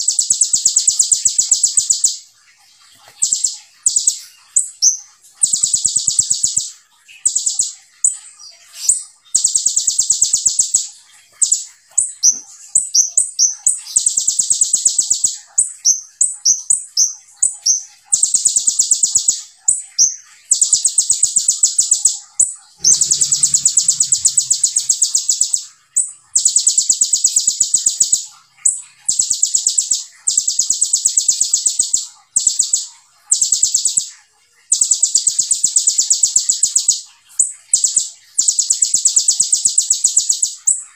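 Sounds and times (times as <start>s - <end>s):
quick bird chirps: 20.5s - 34.1s.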